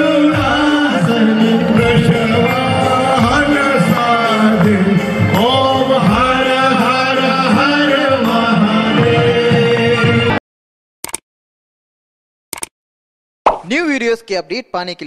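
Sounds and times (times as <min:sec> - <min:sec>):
man singing: 0:00.0 - 0:10.4
music with held notes: 0:00.0 - 0:10.4.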